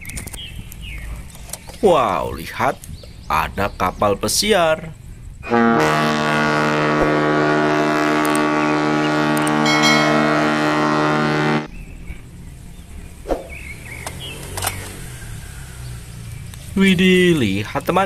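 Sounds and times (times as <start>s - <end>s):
ship's horn blast: 5.4s - 11.7s.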